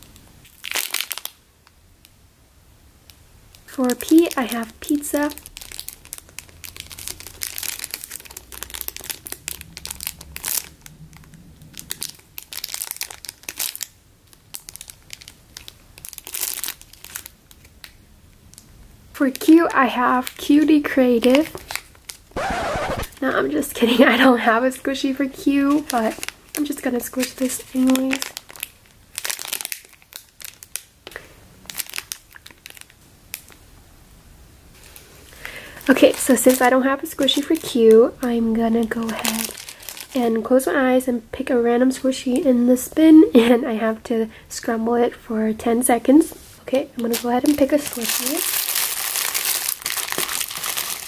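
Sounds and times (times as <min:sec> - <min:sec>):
plastic bag crinkling: 0:00.4 - 0:01.4, 0:03.6 - 0:18.6, 0:19.2 - 0:33.6, 0:34.8 - 0:40.5, 0:47.0 - 0:51.0.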